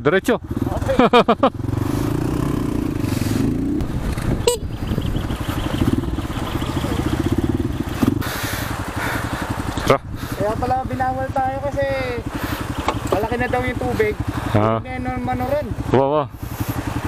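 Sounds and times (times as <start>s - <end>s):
motorcycle engine running: 0.1s - 17.0s.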